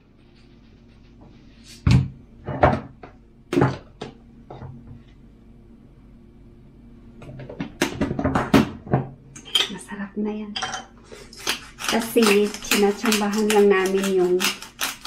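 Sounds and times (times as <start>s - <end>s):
plastic containers knocking on worktop: 1.9s - 4.7s, 7.2s - 9.1s.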